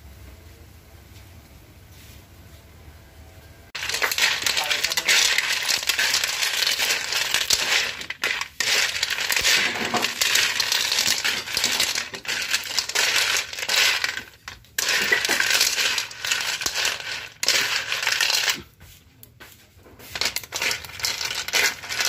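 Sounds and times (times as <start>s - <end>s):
shells clattering in metal wok: 3.8s - 18.7s, 20.1s - 22.0s.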